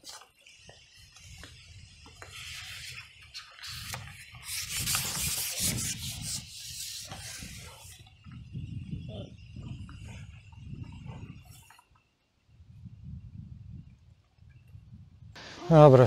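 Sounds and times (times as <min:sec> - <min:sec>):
fishing pole sections scraping: 0:00.0 - 0:08.0.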